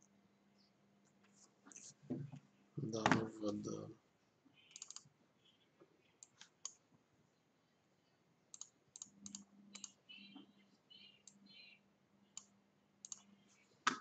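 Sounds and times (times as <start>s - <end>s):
computer mouse clicks: 4.6s - 5.1s, 6.0s - 6.8s, 8.5s - 14.0s.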